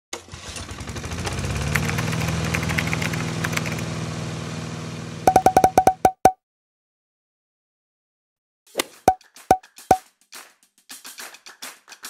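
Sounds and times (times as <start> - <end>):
vehicle engine starting and running: 0.2 - 6.0
short sharp pings: 5.3 - 6.3.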